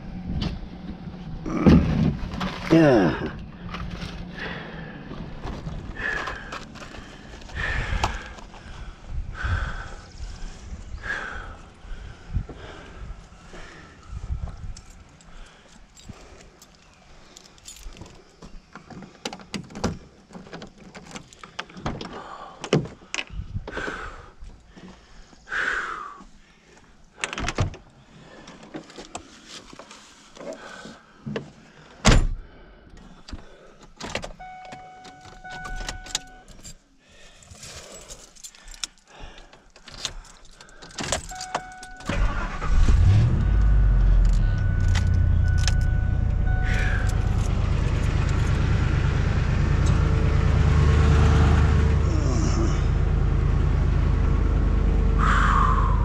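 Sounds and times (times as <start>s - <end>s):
keys jangling: 14.7s - 18.3s, 37.5s - 42.6s, 44.2s - 48.6s
car chime beeping: 34.4s - 36.5s, 41.3s - 42.7s, 43.4s - 48.4s
car engine idling: 41.4s - 56.0s.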